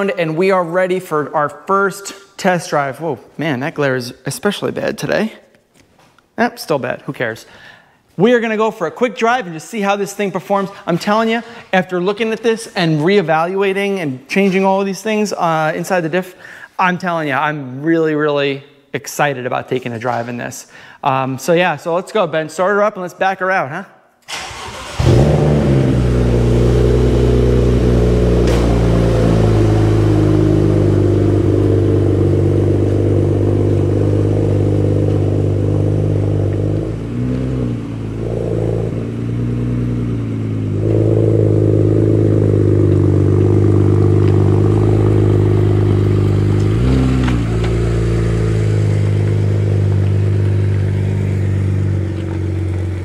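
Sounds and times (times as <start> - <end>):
car engine revving: 24.3 - 53.0
car engine starting and idling: 24.3 - 53.0.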